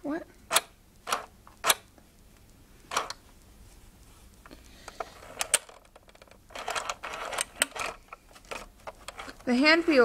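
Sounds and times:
toy sewing machine stitching: 0:06.5 - 0:09.4.

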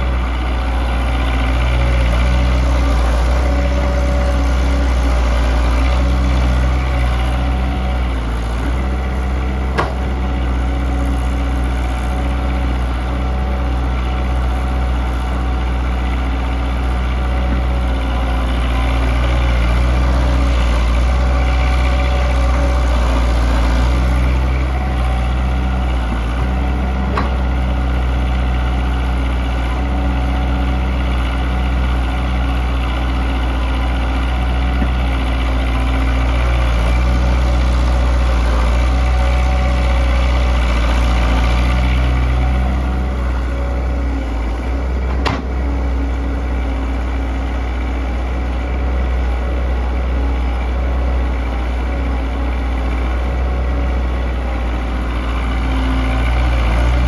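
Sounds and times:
excavator diesel engine running: 0:00.0 - 0:57.0
sharp knocks: 0:09.7 - 0:10.1.

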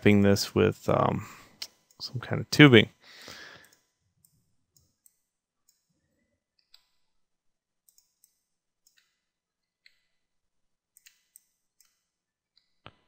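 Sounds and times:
computer mouse clicks: 0:03.6 - 0:05.9, 0:07.8 - 0:09.2, 0:11.0 - 0:12.0.

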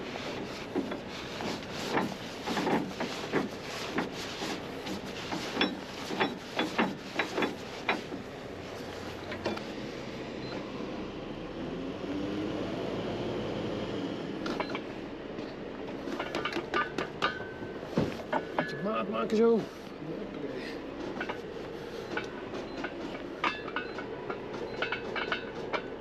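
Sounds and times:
metal clinks and knocks: 0:21.1 - 0:21.5, 0:22.1 - 0:26.0.

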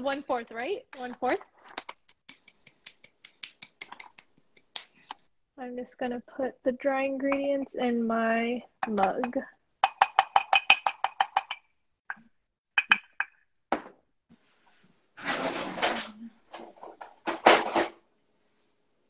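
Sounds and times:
rustling noise: 0:14.3 - 0:18.7.

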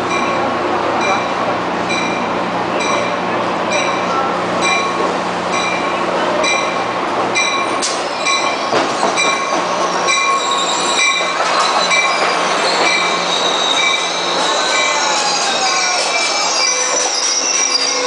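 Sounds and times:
train bell ringing: 0:00.0 - 0:18.0
train wheels squealing: 0:07.4 - 0:18.0.

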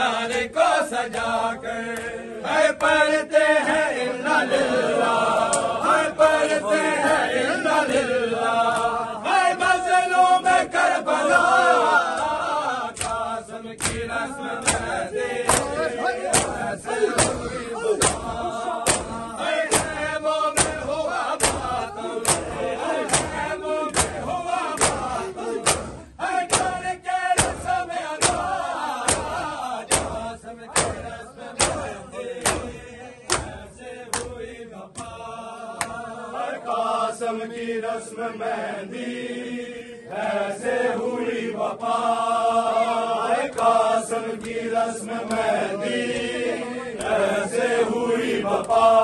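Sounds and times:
men chanting in unison: 0:00.0 - 0:49.0
hands slapping chests: 0:05.4 - 0:05.8, 0:08.7 - 0:09.0, 0:12.1 - 0:35.2, 0:35.8 - 0:36.1, 0:43.5 - 0:44.6, 0:45.2 - 0:46.4, 0:47.0 - 0:47.2.

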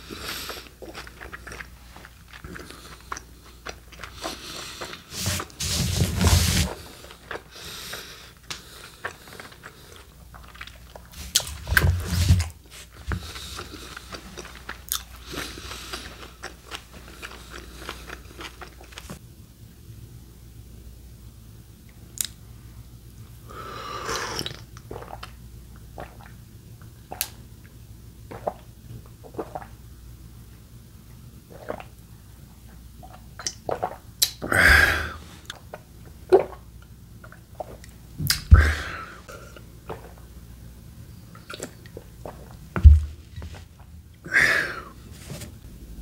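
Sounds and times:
chewing: 0:00.2 - 0:05.5, 0:08.4 - 0:11.8, 0:12.4 - 0:19.2
swallowing gulps of milk: 0:24.0 - 0:25.4.

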